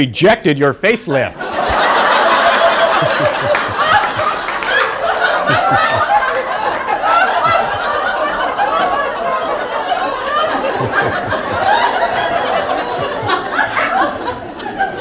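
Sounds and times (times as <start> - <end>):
audience laughing: 1.3 - 15.0.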